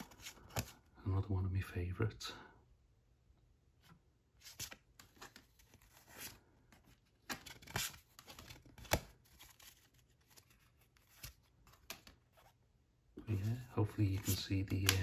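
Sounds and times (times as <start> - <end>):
cards being leafed through: 0.0 - 0.8, 4.4 - 12.6, 13.2 - 15.0.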